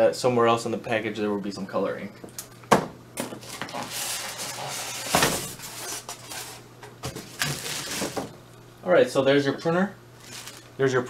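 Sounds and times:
packing crinkling and rustling: 3.4 - 8.3, 10.2 - 10.8.

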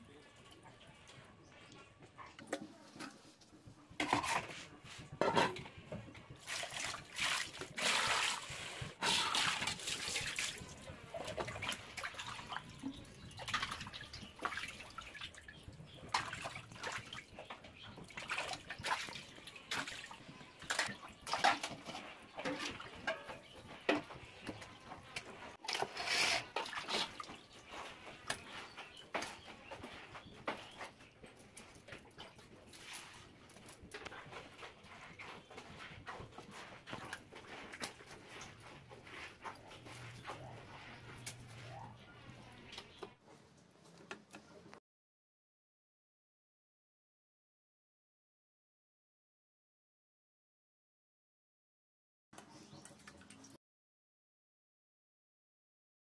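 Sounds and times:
water splashing in metal bowl: 6.4 - 23.6.

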